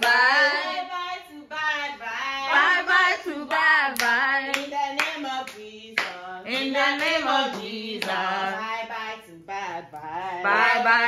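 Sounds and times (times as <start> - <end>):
sharp hand claps: 3.5 - 8.2.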